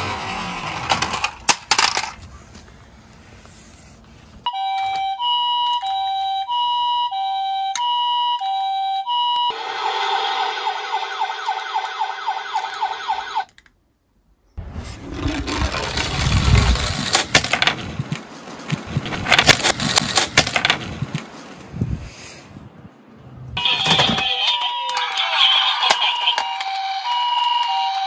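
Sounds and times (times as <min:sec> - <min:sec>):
toy truck rolling down wooden slope: 0:00.0 - 0:02.3, 0:09.7 - 0:13.7, 0:14.6 - 0:21.3
electronic siren: 0:04.5 - 0:13.5, 0:23.6 - 0:28.0.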